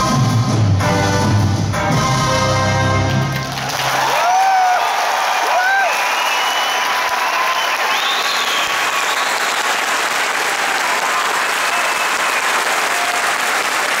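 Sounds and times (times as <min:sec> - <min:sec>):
audience applauding: 0:03.0 - 0:14.0.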